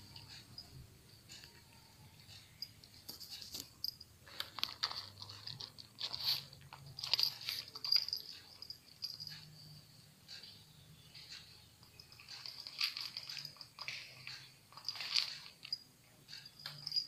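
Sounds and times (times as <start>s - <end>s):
cat crunching dry kibble: 4.3s - 8.0s, 12.2s - 15.8s.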